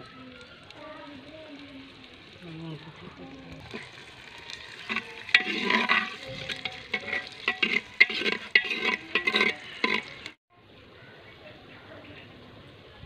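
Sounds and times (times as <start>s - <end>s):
onions sizzling: 0.0s - 10.4s
ladle scraping a pot: 3.6s - 10.4s.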